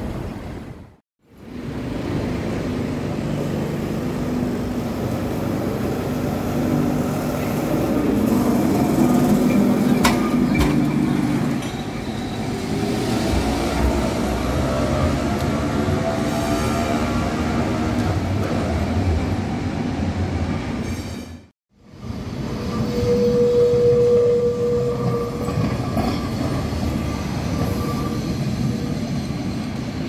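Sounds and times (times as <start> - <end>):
tram motor humming: 1.6 - 20.0
steel wheels rumbling on track: 4.1 - 18.9.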